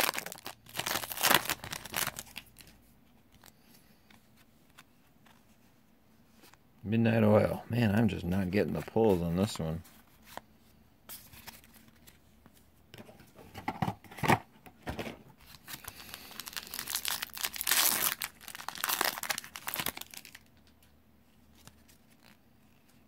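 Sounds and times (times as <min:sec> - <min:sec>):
foil wrapper tearing and crinkling: 0:00.0 - 0:02.7, 0:15.4 - 0:20.5.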